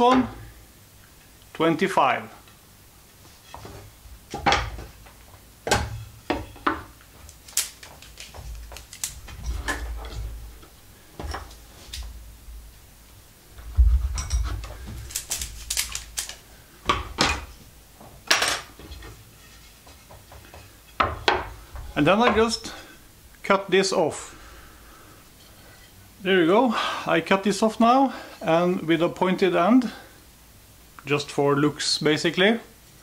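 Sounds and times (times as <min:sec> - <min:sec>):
wooden sticks knocking on table: 0:19.8 - 0:21.5.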